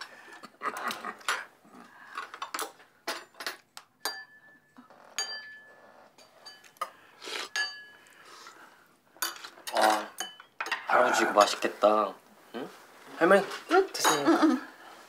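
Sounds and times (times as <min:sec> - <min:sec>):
utensils clinking on ceramic bowls: 0:02.2 - 0:08.1, 0:09.2 - 0:11.6, 0:13.8 - 0:14.6.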